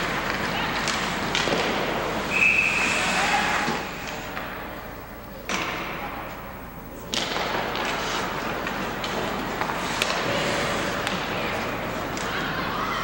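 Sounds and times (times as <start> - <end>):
ice rink noise: 0.0 - 13.0
referee's whistle: 2.3 - 3.0.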